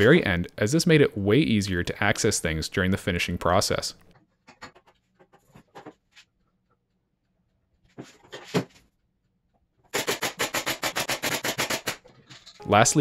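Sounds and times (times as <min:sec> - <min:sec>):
stapler firing rapid shots: 0:09.9 - 0:12.0.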